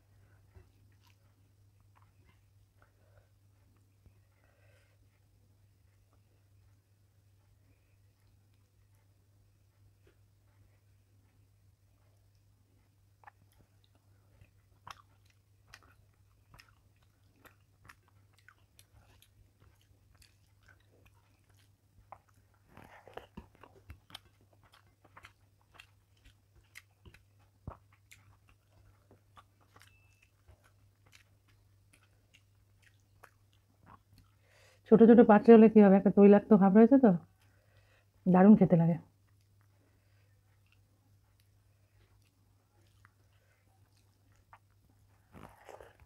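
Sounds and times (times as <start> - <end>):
fingers mixing food on a plate: 0.0 - 34.4
chewing: 0.0 - 34.8, 37.2 - 38.2, 39.1 - 46.0.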